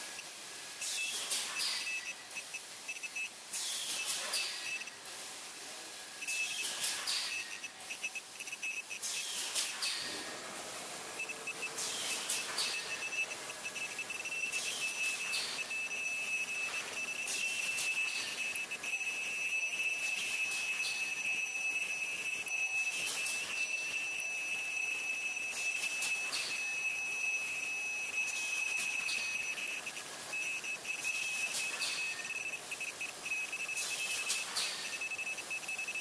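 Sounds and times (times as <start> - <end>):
machine hisses and clacks: 0.0 - 5.6, 6.2 - 10.3, 11.5 - 15.7, 28.4 - 36.0
machine high-pitched whine: 6.2 - 10.1, 11.1 - 36.0.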